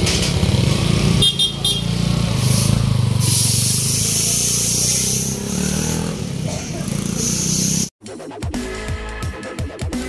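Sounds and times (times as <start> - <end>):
motorcycle engine pulling away: 0.0 - 7.9.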